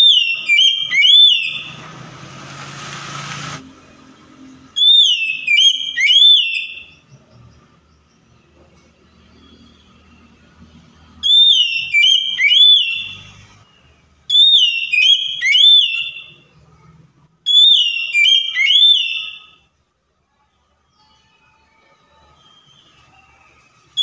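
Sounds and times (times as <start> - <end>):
bird singing whistled phrases: 0.0 - 1.8, 4.7 - 7.1, 11.2 - 13.4, 14.3 - 16.4, 17.5 - 19.6, 20.9 - 24.0.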